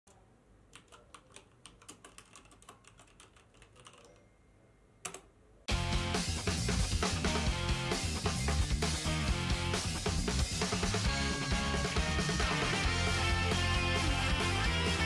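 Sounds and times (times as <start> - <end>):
keyboard key clicks: 0.1 - 4.2
rock song: 5.7 - 15.0.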